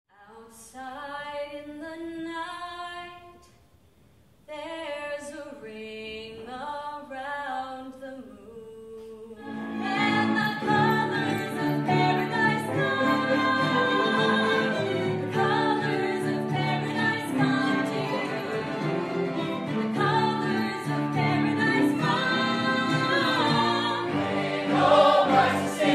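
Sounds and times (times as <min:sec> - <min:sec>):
woman singing: 0:00.1 - 0:03.5, 0:04.5 - 0:19.0, 0:19.7 - 0:24.4
orchestral music: 0:09.4 - 0:25.9.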